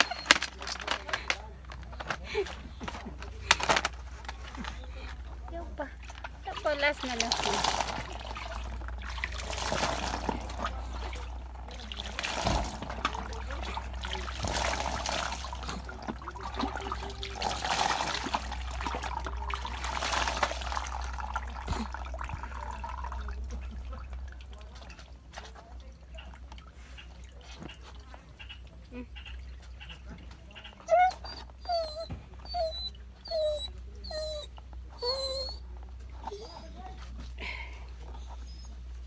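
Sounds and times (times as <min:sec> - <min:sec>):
water pouring and splashing: 0:05.5 - 0:28.2.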